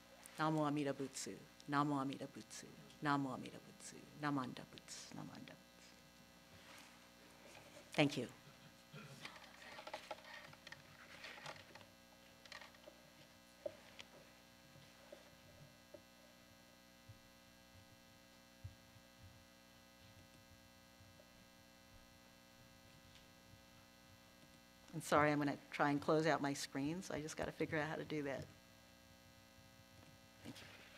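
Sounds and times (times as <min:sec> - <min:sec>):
electrical mains hum: 0:00.0 - 0:30.9
faint clicks and rustles: 0:08.9 - 0:16.1.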